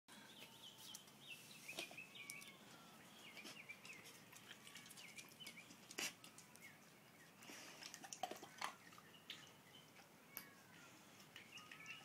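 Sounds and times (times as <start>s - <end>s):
dog lapping in metal dish: 7.6s - 9.5s
wet clicks and splashes: 7.8s - 9.5s.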